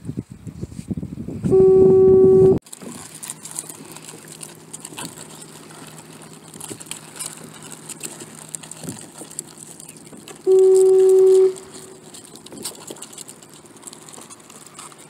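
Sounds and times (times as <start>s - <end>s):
low steady hum: 1.4s - 15.0s
loud steady tone: 1.5s - 2.6s, 10.4s - 12.0s.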